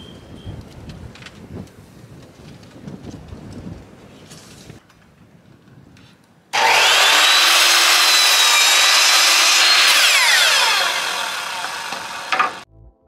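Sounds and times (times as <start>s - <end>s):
miter saw cutting wood: 6.6s - 12.7s.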